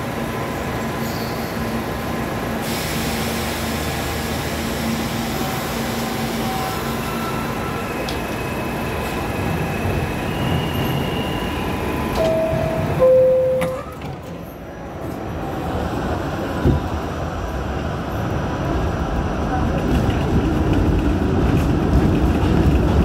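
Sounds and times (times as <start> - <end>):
subway train low rumble: 0.0 - 23.0
two-tone door chime: 12.2 - 14.0.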